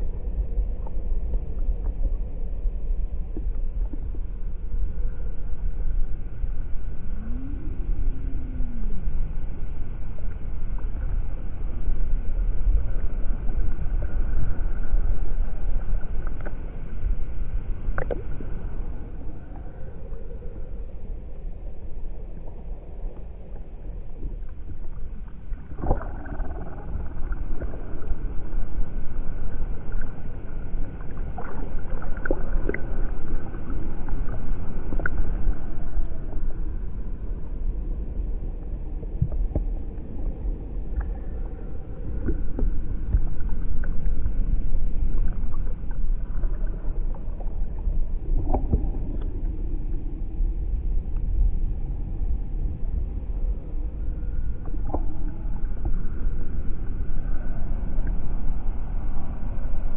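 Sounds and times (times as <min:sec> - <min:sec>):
rumble of sea water: 0:00.0 - 0:59.9
short wavering glides: 0:05.2 - 0:11.6.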